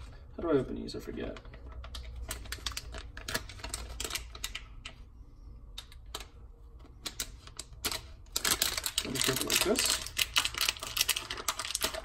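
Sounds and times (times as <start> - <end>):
foil bag crinkling: 7.5 - 12.0.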